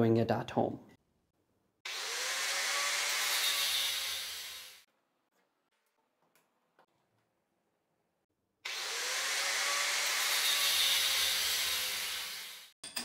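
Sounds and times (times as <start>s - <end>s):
angle grinder cutting steel: 1.9s - 4.9s, 8.7s - 12.8s.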